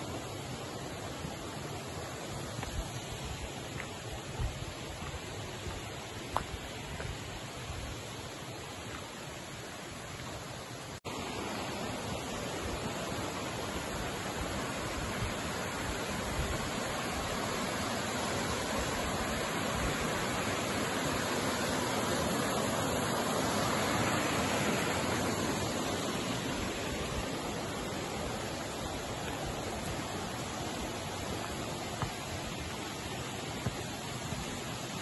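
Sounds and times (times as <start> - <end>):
mountain stream rushing: 0.0 - 35.0.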